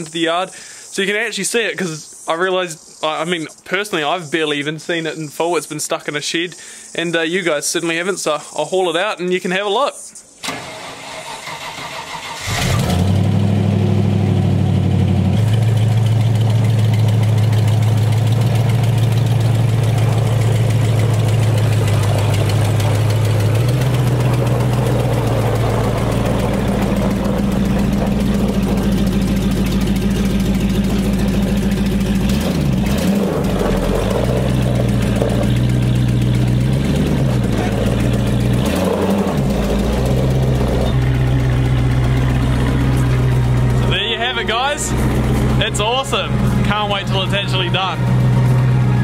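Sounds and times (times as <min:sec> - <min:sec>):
engine starting and idling: 0:10.4 - 0:49.0.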